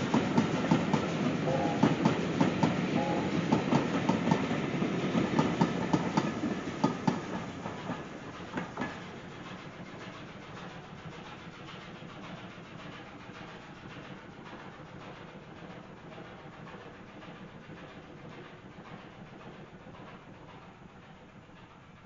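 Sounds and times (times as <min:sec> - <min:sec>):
train wheels clattering over rail joints: 0:00.0 - 0:11.3.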